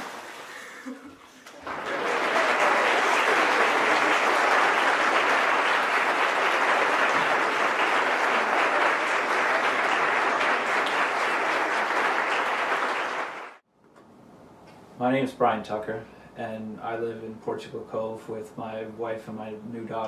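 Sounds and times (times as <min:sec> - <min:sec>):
crowd applauding: 0:01.5 - 0:13.6.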